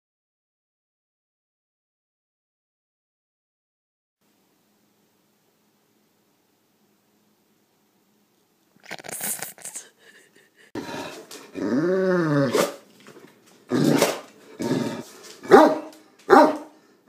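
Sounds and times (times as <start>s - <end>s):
dog moaning: 9.6s - 12.8s, 13.7s - 15.6s
dog barking: 13.8s - 14.3s, 15.4s - 16.8s.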